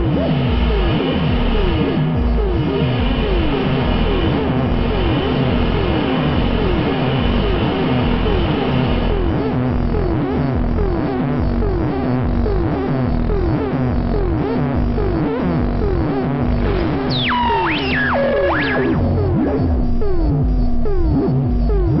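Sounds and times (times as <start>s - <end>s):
steady low synth pulse: 0.0s - 22.0s
repeating falling synth tone: 9.1s - 22.0s
high gliding synth tones: 14.2s - 22.0s.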